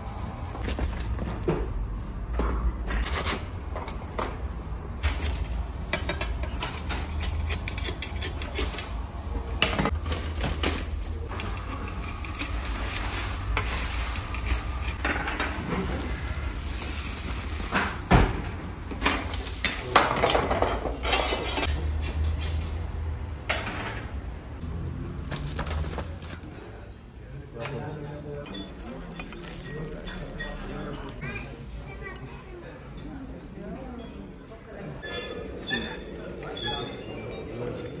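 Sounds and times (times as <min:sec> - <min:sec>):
wire scoop clinking on metal: 0:28.5 - 0:31.2.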